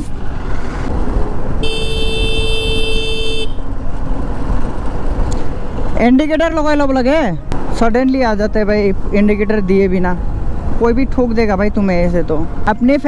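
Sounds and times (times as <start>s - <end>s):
wind rushing: 0.0s - 1.6s
motorcycle engine: 0.0s - 6.0s
vehicle horn: 1.6s - 3.7s.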